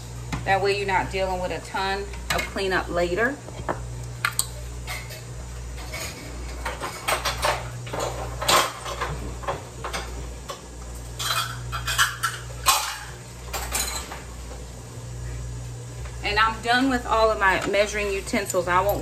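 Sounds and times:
low steady hum: 0.0 - 19.0
metal utensils clinking: 11.2 - 14.1.

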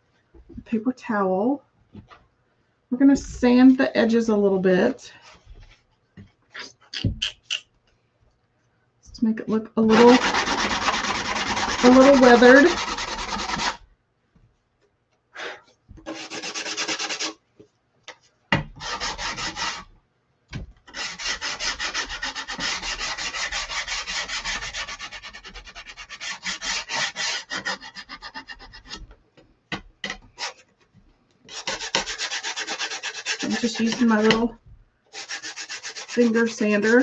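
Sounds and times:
sandpaper scraping wood: 9.9 - 13.8, 16.1 - 17.4, 18.8 - 19.9, 20.9 - 29.0, 30.4 - 30.6, 31.5 - 34.4, 35.1 - 37.0.

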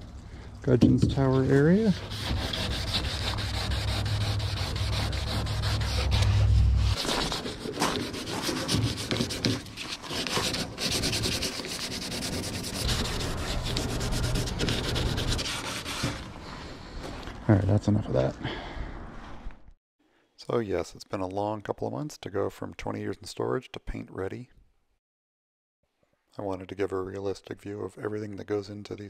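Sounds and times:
sandpaper rubbing wet surface: 1.3 - 16.2
low rumble: 2.4 - 7.0.

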